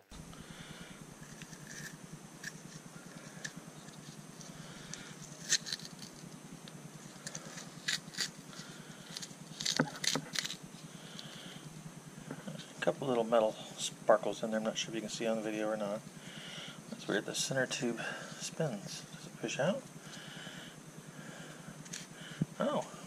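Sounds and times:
sharp crackles: 1.2s - 11.5s.

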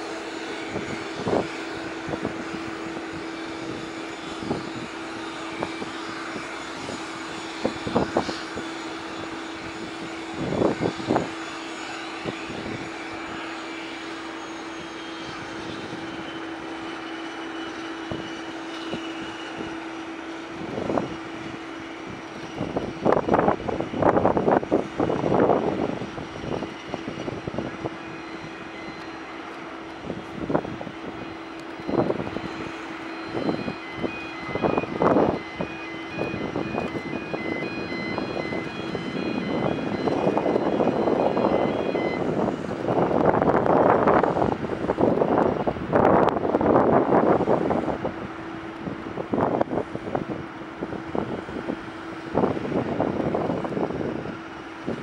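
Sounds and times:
turboprop engines humming: 0.0s - 55.0s
wind buffeting microphone: 0.0s - 55.0s
faint high beeps: 31.2s - 42.3s.

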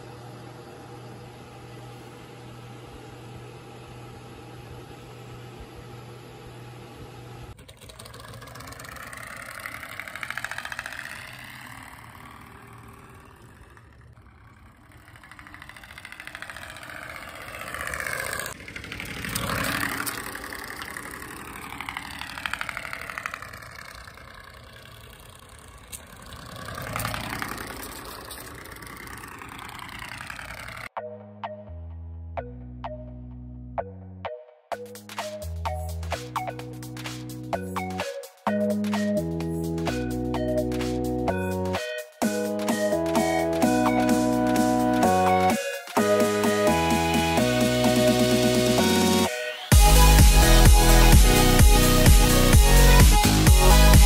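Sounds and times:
low vehicle cabin hum: 0.0s - 30.9s
vehicle passing close by: 8.0s - 30.9s.

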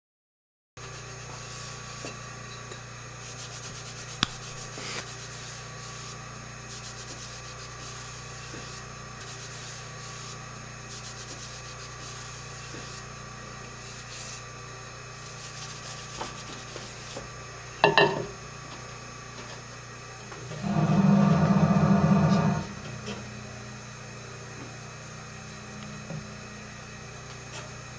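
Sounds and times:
steady hum: 0.8s - 27.9s
rubbing on a wheel head: 3.2s - 13.1s.

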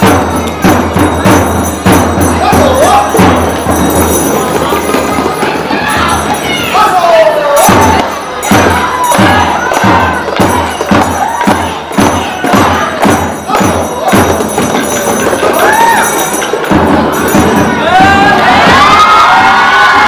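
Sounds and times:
dance music with drumbeat: 0.0s - 20.0s
handheld drums beating: 0.0s - 20.0s
audience cheering and whooping: 15.5s - 16.2s, 17.7s - 20.0s.

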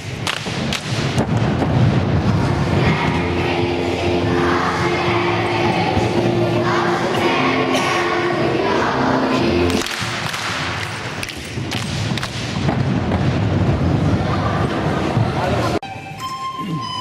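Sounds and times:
knocks and thuds: 0.4s - 2.4s, 11.6s - 14.1s
children's choir singing: 2.2s - 10.8s
instrumental accompaniment: 15.8s - 17.0s.

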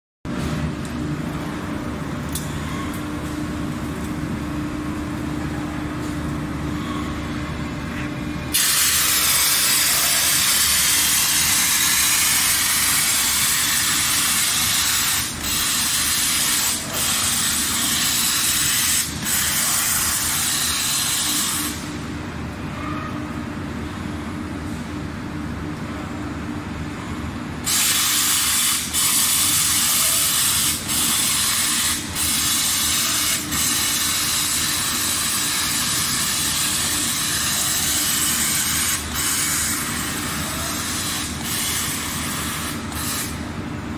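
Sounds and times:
steady machine hum: 0.3s - 43.9s
loud air hiss: 8.5s - 21.9s, 27.6s - 40.2s.

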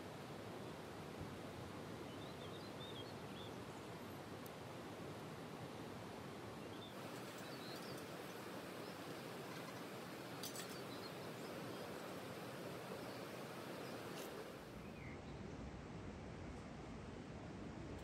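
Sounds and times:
steady background hiss: 0.0s - 18.0s
faint bird chirps: 6.6s - 15.4s.

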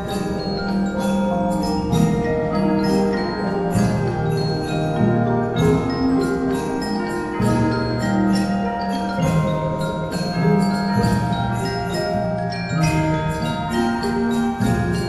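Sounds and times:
mallet percussion bell-like notes: 0.0s - 15.0s.

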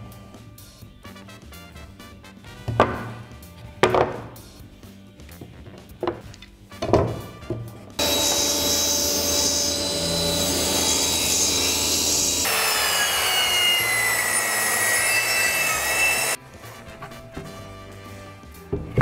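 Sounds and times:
circular saw cutting: 8.0s - 16.9s
table saw cutting: 8.0s - 17.5s.

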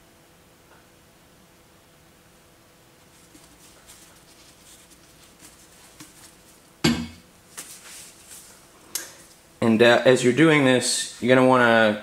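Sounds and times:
plastic bottle crackling: 3.1s - 6.7s
bottle knocking on metal: 6.8s - 7.2s.

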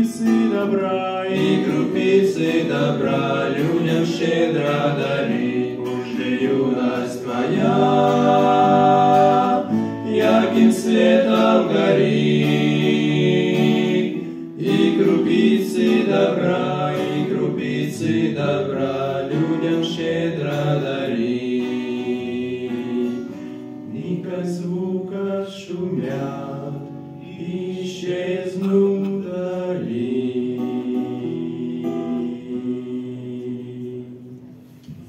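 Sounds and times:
men singing in harmony: 0.0s - 34.3s
strummed acoustic guitar: 0.0s - 35.0s.

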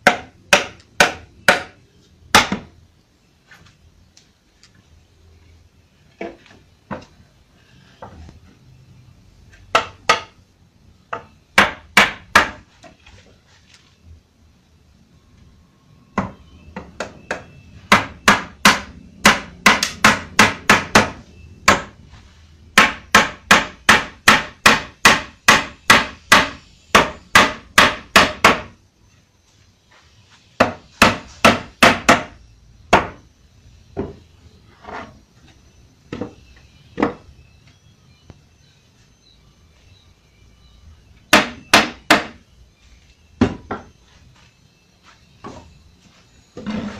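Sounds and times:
hammer striking wooden frame: 0.0s - 2.8s, 9.7s - 10.4s, 11.1s - 13.0s, 16.1s - 22.0s, 22.7s - 28.8s, 30.6s - 33.2s, 36.1s - 37.3s, 41.3s - 42.4s, 43.4s - 44.0s.

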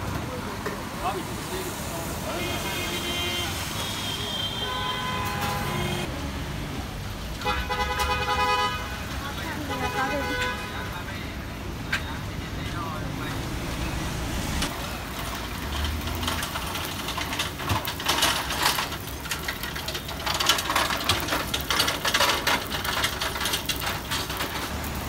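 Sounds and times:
idling traffic rumble: 0.0s - 25.0s
bread frying in oil: 14.6s - 25.0s.

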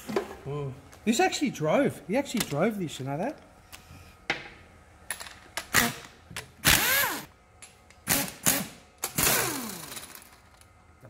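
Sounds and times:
pneumatic air tool bursts: 5.7s - 7.3s, 8.0s - 10.2s.

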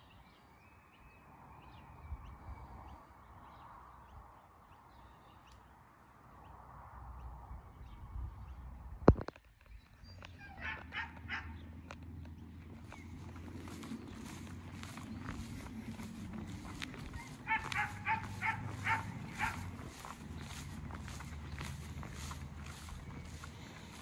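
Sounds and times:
dog barking: 10.4s - 11.6s, 17.2s - 19.7s.

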